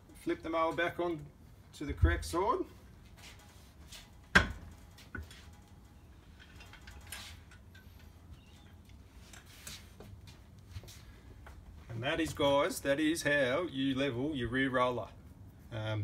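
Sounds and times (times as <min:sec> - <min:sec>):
clunks and rustles: 0:03.0 - 0:12.4.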